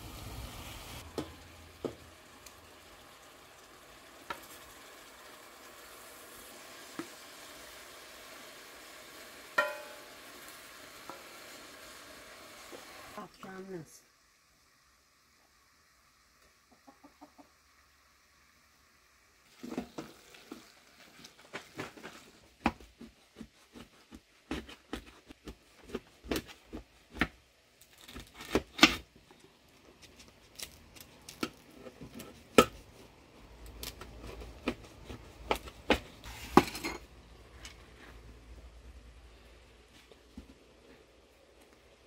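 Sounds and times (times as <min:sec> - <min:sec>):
wooden spoon scraping metal pot: 0:36.2 - 0:38.3.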